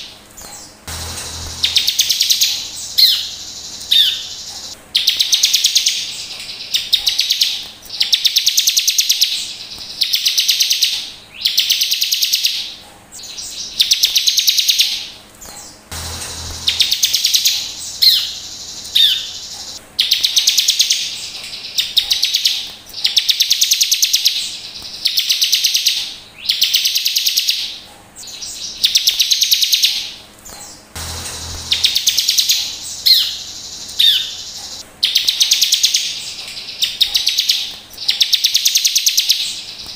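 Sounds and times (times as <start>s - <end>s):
short sharp bird notes: 0.4s - 4.8s, 31.0s - 34.8s
bird high rapid trill: 0.4s - 15.1s, 15.9s - 30.1s, 31.0s - 39.8s.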